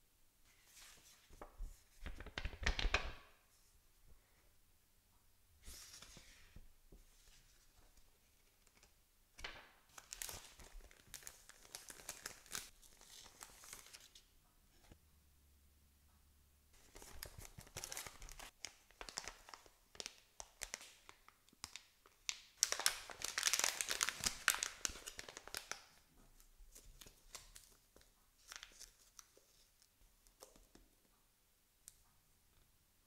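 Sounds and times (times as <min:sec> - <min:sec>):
packaging rustling: 0:09.9 - 0:14.0, 0:22.6 - 0:25.8
foil bag crinkling and tearing: 0:22.6 - 0:25.8.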